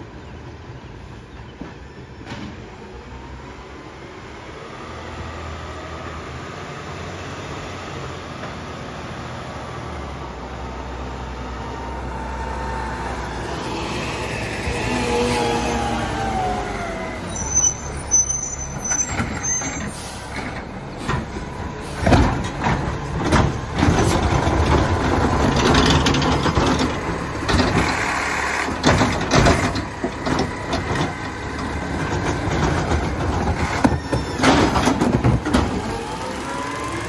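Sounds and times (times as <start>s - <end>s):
garbage truck engine running: 10.1s - 37.0s.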